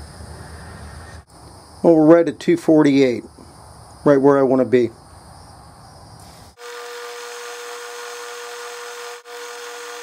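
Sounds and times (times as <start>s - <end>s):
metal lathe whining: 6.6s - 10.0s.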